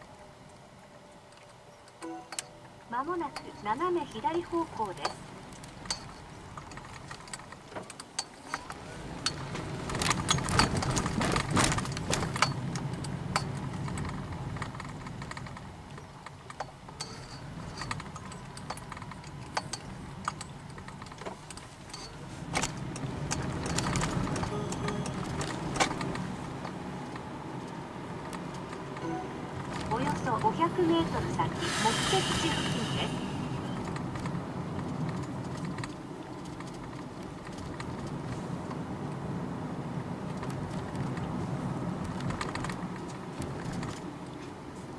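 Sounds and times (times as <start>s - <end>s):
car road noise: 0.0s - 44.9s
tyres clattering over rails: 3.2s - 15.7s.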